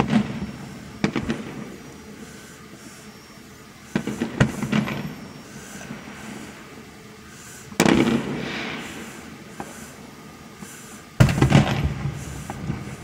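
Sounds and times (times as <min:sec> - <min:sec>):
fireworks bangs with rolling echo: 0:00.0 - 0:01.8, 0:03.9 - 0:05.2, 0:07.8 - 0:09.9, 0:11.2 - 0:12.9.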